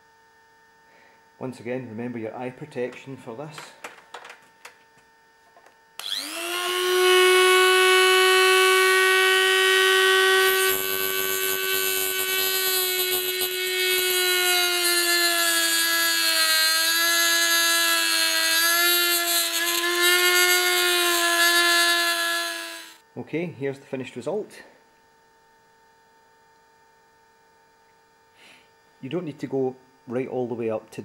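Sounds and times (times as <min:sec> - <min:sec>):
rotary tool cutting plastic: 0:06.0 - 0:23.0
rotary tool whining: 0:06.0 - 0:23.0.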